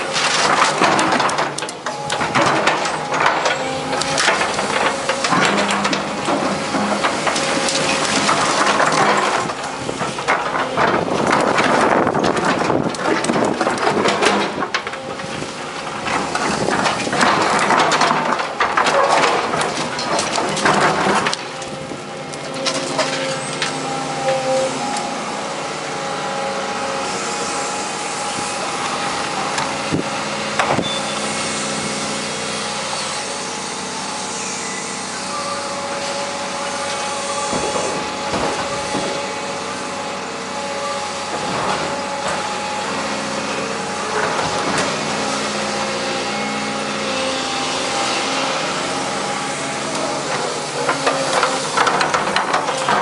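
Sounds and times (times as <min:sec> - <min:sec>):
metal knocks and clanks: 0:00.0 - 0:25.0, 0:37.1 - 0:39.5, 0:49.3 - 0:53.0
concrete crunching: 0:00.0 - 0:33.7, 0:35.2 - 0:53.0
excavator diesel engine whining: 0:00.0 - 0:53.0.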